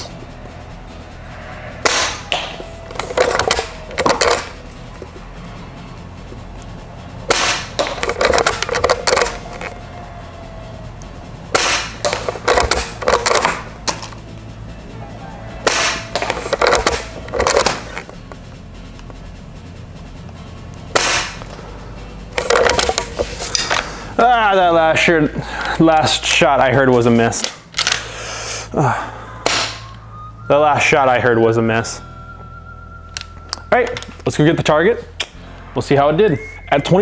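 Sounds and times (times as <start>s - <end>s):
lever action clacking: 7.3s - 9.7s, 11.5s - 14.2s, 15.6s - 18.1s.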